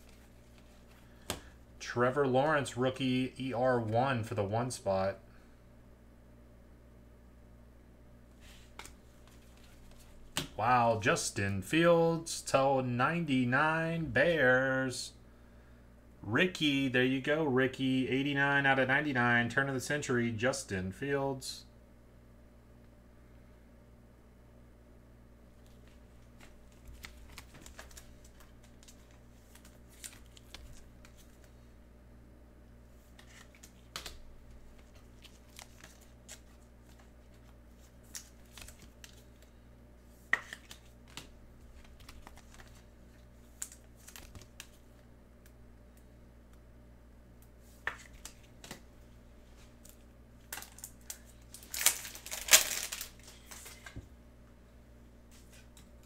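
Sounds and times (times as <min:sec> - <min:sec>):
cards clicking and rustling: 0:25.6 - 0:31.6, 0:33.0 - 0:39.6, 0:40.2 - 0:45.6, 0:47.7 - 0:48.8, 0:49.8 - 0:54.0
wrapper crinkling and tearing: 0:34.8 - 0:39.3, 0:43.6 - 0:44.7, 0:49.8 - 0:53.9.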